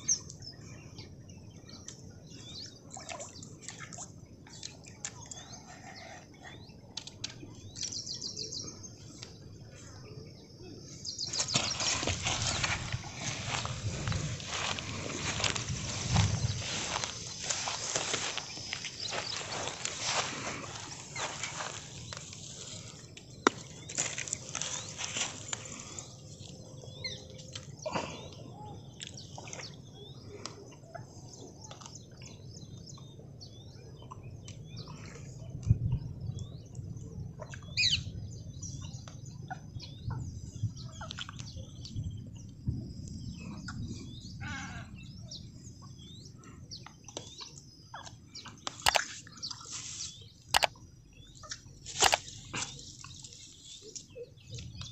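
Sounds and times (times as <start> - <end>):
small birds chirping: 0.0 - 54.9
fish handled on grass: 11.3 - 26.0.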